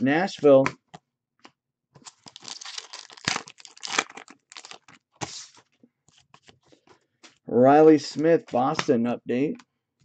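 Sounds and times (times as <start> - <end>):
cards and foil wrappers crinkling: 2.0 - 5.6.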